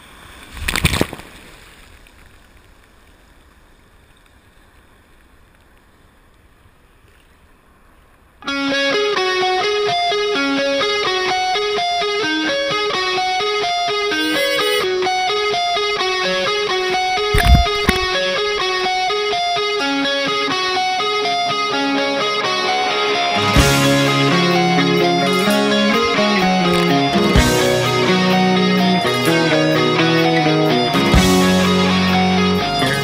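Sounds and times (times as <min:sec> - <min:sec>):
faint wash of water: 0:00.0 - 0:07.6
plucked guitar tune: 0:08.4 - 0:33.0
loud thump: 0:17.4 - 0:18.2.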